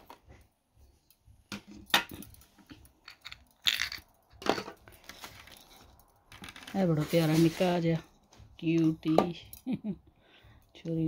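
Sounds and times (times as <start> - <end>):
plastic parts clattering on glass: 1.5 - 6.9.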